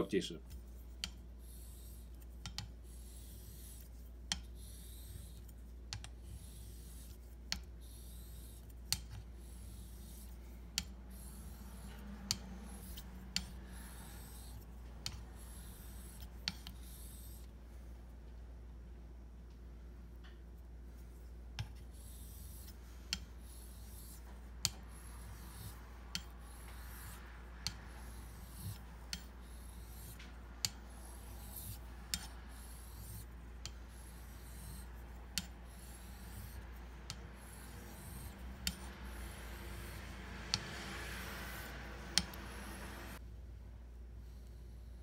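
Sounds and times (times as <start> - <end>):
razor scraping on whetstone: 6.2 - 17.5, 21.7 - 43.2.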